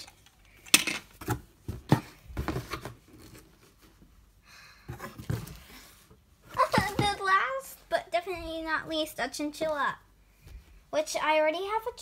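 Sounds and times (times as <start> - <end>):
soft rustle: 7.8 - 11.2.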